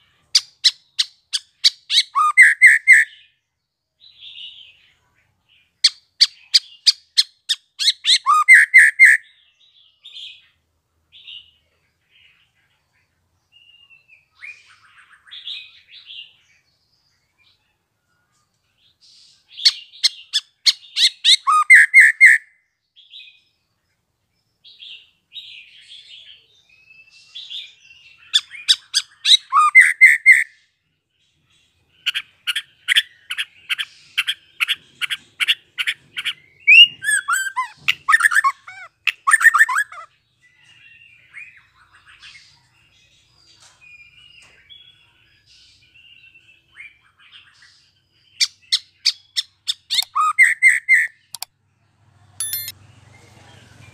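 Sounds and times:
soft bird twittering: 0.0 - 51.6, 52.3 - 53.9
bird singing sharp notes: 52.4 - 53.0.

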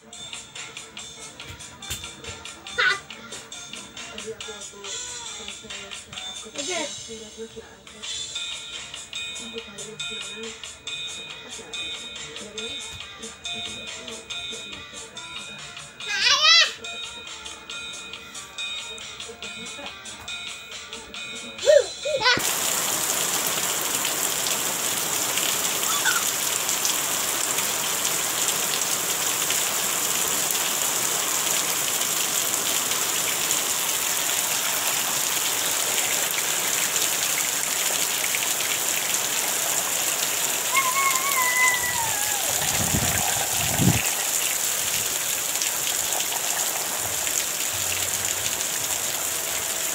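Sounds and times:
steady rain falling: 22.4 - 49.9
high call falling in pitch: 25.8 - 26.4, 40.6 - 44.6.

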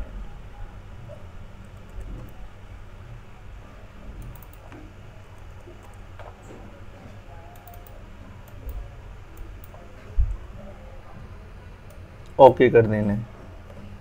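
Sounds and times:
low background noise: 0.0 - 14.0
keyboard keystrokes and clicks: 4.2 - 4.8, 7.5 - 9.8.

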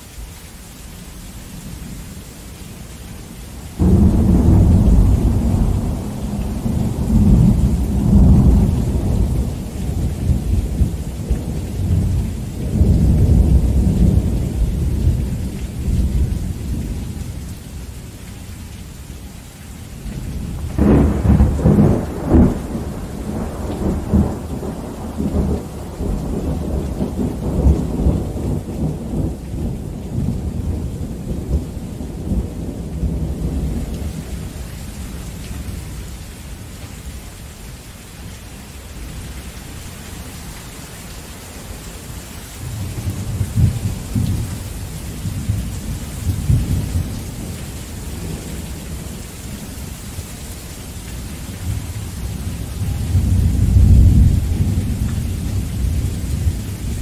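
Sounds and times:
heavy rain falling: 0.0 - 57.0
sharp thunderclap: 3.8 - 12.0, 20.6 - 30.9
rolling thunder: 3.8 - 17.1, 20.3 - 34.5, 51.6 - 57.0.

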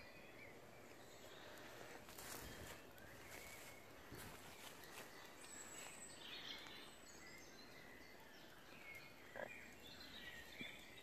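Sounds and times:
faint birdsong chirps: 0.0 - 11.0.

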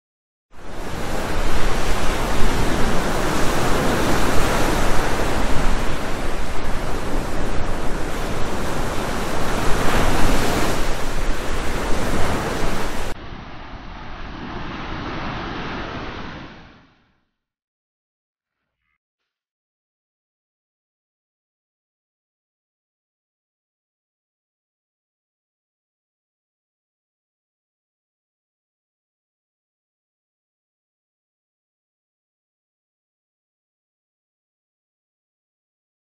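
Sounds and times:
wind: 0.5 - 17.2
surf rushing: 0.6 - 17.1.

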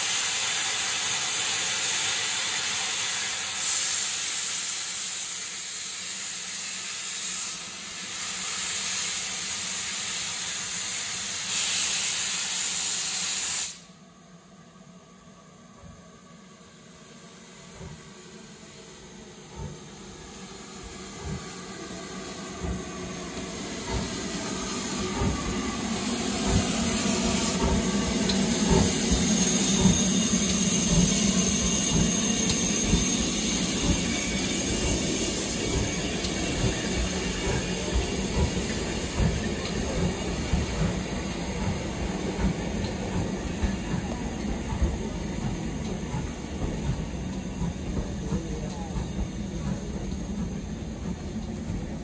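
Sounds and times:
steam hissing: 0.0 - 13.9, 16.8 - 52.0
steam locomotive exhaust beats: 15.8 - 52.0
train passing: 15.8 - 52.0.

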